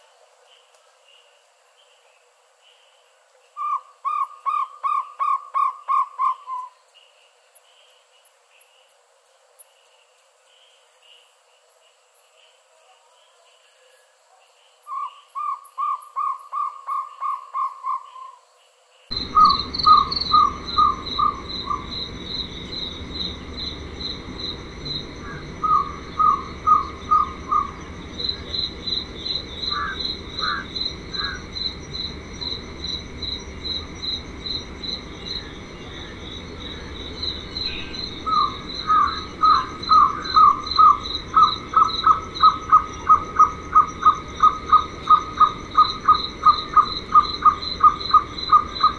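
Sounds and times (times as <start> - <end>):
insect chirping: 0.0 - 48.9
owlet calling: 19.1 - 33.1, 35.0 - 48.9.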